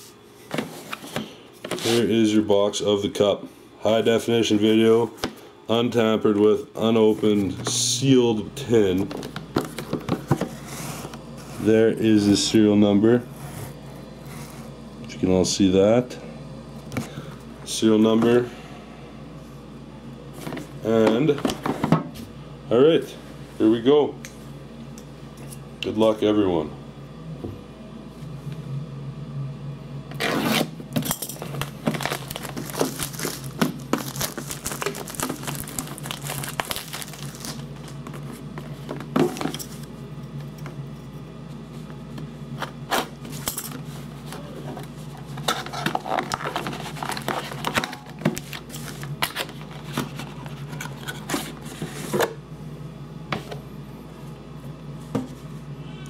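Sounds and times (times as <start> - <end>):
plastic wrapping crinkling: 31.4 - 38.4
cardboard tearing: 31.8 - 37.6.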